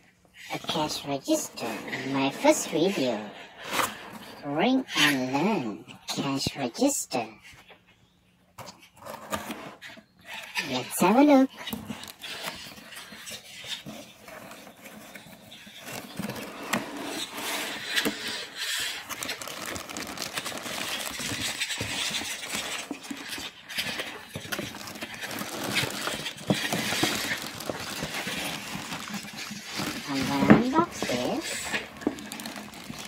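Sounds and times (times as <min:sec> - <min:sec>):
plastic bags crinkling: 0:11.1 - 0:33.0.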